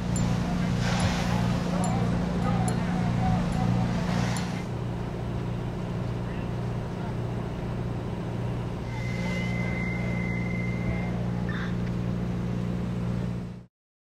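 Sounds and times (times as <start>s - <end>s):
thin high steady tone: 0.0s - 5.2s, 8.8s - 11.8s
fire truck engine drone: 0.0s - 13.7s.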